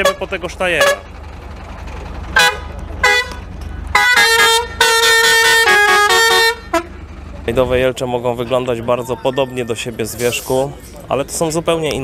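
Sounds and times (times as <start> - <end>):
truck air horn: 0.0 - 1.1, 2.3 - 7.0.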